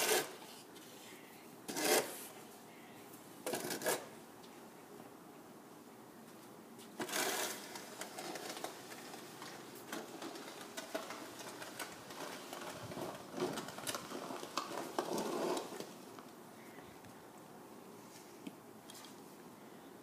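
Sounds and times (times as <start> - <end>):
snow shovel scraping pavement: 0.0 - 0.5, 1.7 - 2.3, 3.5 - 4.2, 7.0 - 16.0.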